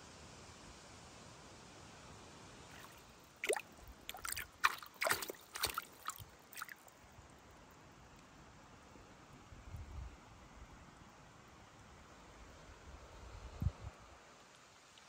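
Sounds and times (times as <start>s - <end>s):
faint steady hiss: 0.0s - 15.0s
water splashing and dripping: 2.7s - 6.9s.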